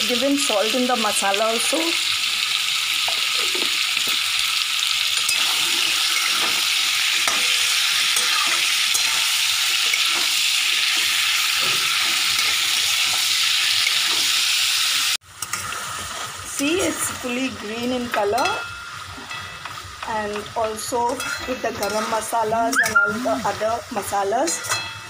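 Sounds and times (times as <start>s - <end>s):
chicken sizzling in a pan: 0.0s - 25.0s
metal spatula scraping a pan: 5.2s - 14.3s, 21.0s - 23.6s.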